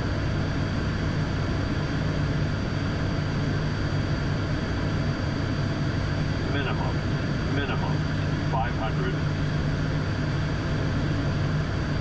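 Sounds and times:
thin steady high whine: 0.0 - 12.0
turboprop engines droning: 0.0 - 12.0.

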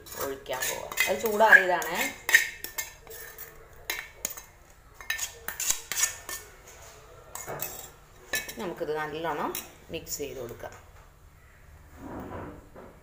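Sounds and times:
spatula scraping a pan: 0.0 - 8.7.

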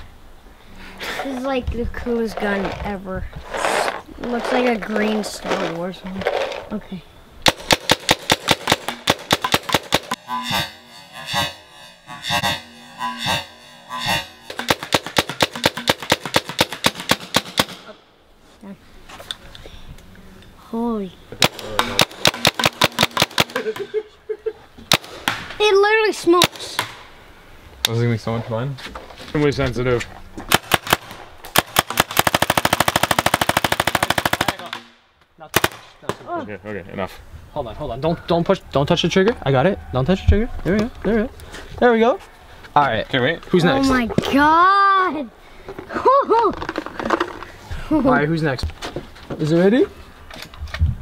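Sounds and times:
paintball gun rapid fire: 7.4 - 10.2, 14.6 - 17.9, 21.4 - 23.8, 24.9 - 25.5, 30.5 - 35.9
slow pulsing held tone: 10.1 - 14.9.

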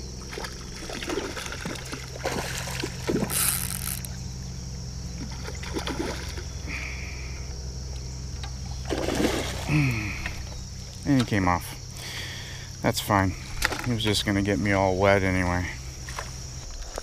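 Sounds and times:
fish thrashing and splashing: 0.1 - 4.2, 5.2 - 6.5, 8.8 - 10.6.

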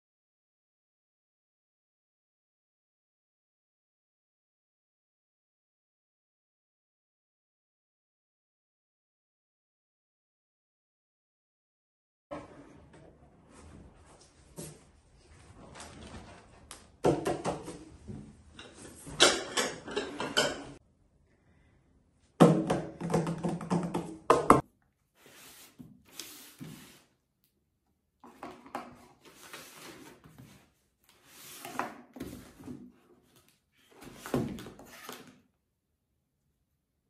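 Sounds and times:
paper and cardboard rustling: 28.9 - 35.2.

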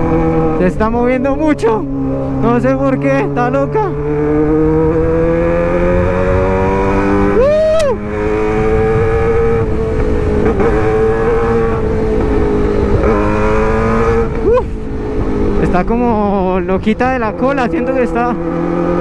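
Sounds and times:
motorcycle engine pulling steadily: 0.0 - 19.0
wind rushing: 3.9 - 19.0.

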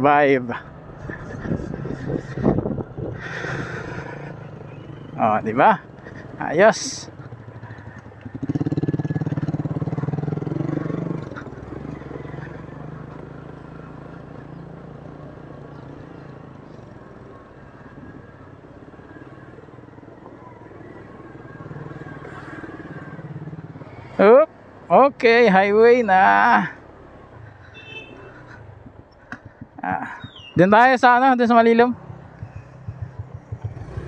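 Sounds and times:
small motorcycle engine running: 7.4 - 14.9, 31.9 - 34.0.

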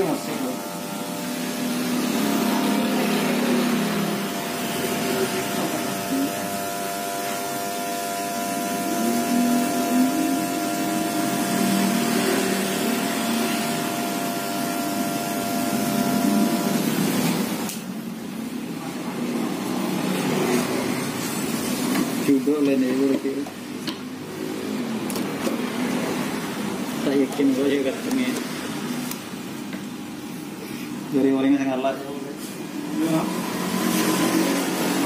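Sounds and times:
electric hair clippers humming: 0.0 - 17.9.

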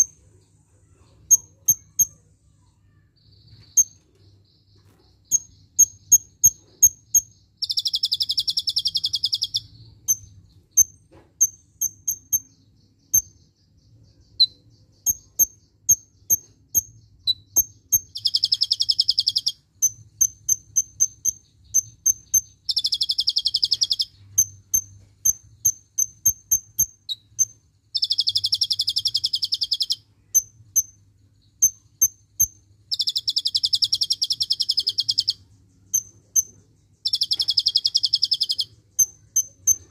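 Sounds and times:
bird chipping and trilling: 0.0 - 39.9.

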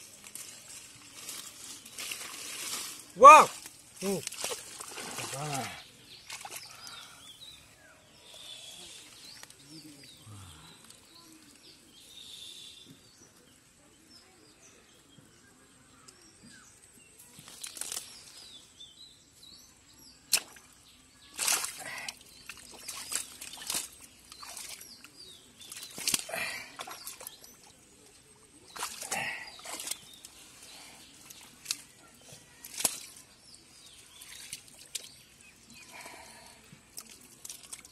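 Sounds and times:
fish splashing in water: 21.3 - 24.9, 28.7 - 30.0.

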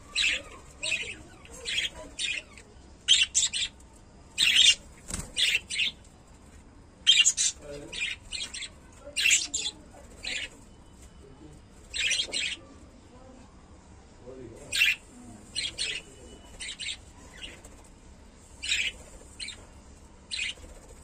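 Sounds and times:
budgerigars chirping: 3.1 - 3.8, 4.4 - 4.8, 7.0 - 10.5, 11.9 - 12.6, 14.7 - 17.6, 18.6 - 19.6.

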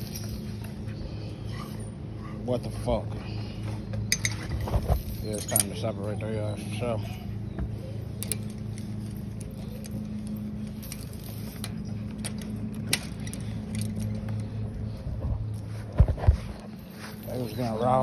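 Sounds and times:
chain-link fence rattling: 0.0 - 1.0, 4.1 - 7.0, 8.1 - 15.0
low mechanical hum: 0.0 - 18.0.

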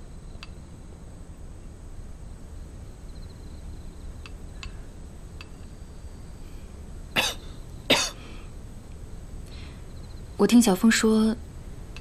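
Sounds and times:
person coughing: 7.2 - 8.3.

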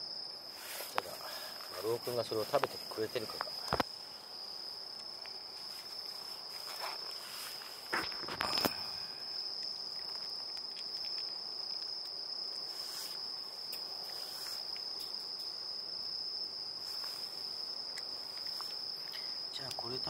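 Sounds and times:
insect trill: 0.0 - 20.0
cat chewing and licking: 9.5 - 12.1.

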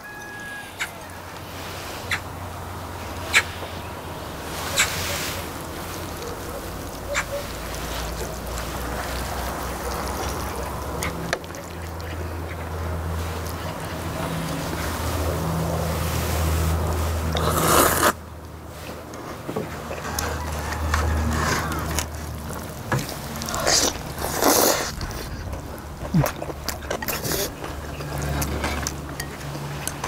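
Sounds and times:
slurping and chewing: 17.2 - 18.2, 19.9 - 30.0.

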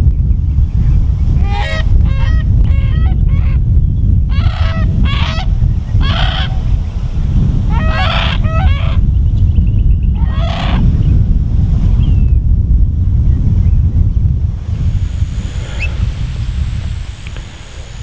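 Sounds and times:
wind rumble on microphone: 0.0 - 18.0
cranes calling: 1.4 - 3.7, 4.3 - 7.0, 7.6 - 9.2, 10.2 - 10.9, 14.7 - 18.0.

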